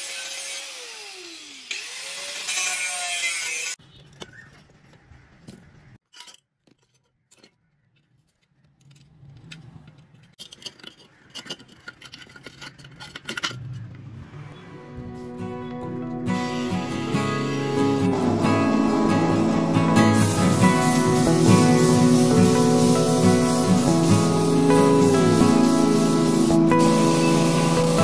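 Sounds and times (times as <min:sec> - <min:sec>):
angle grinder cutting sheet steel: 0:00.0 - 0:03.8, 0:16.3 - 0:28.0
sheet metal clinks and scrapes: 0:06.0 - 0:07.6, 0:10.3 - 0:13.9.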